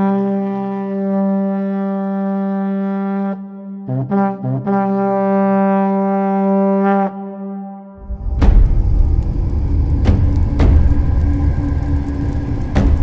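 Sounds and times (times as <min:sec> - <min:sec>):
brass-like instrument notes: 0:00.0 - 0:08.7.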